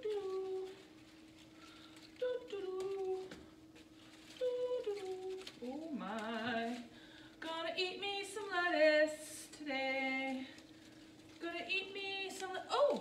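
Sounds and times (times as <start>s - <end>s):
woman singing: 0.0s - 0.8s, 2.2s - 3.5s, 4.4s - 10.6s, 11.4s - 13.0s
faint steady hum: 0.0s - 13.0s.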